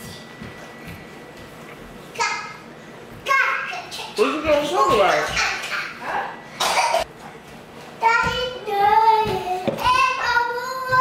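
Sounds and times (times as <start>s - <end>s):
child singing high notes: 8.0s - 11.0s.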